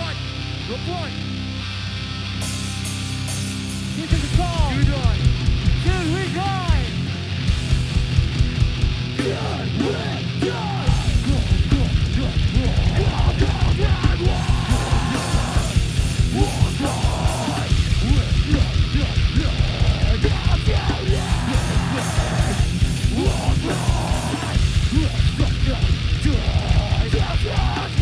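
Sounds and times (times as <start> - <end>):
heavy electric guitar: 0.0 - 28.0
fast drumming: 4.0 - 28.0
vocalist yelling into microphone: 5.8 - 7.0.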